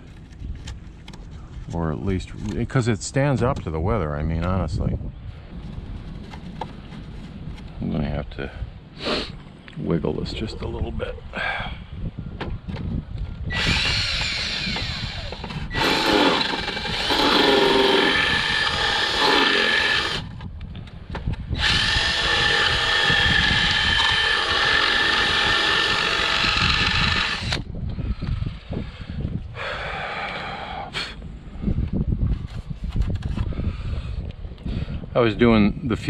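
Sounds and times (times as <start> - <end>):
cordless drill drilling into plastic: 13.5 - 20.3, 21.6 - 27.7.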